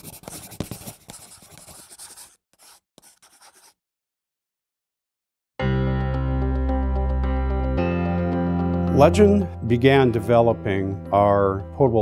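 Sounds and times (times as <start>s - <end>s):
pencil scratching on paper: 0.0s - 3.8s
music with sustained tones: 5.6s - 12.0s.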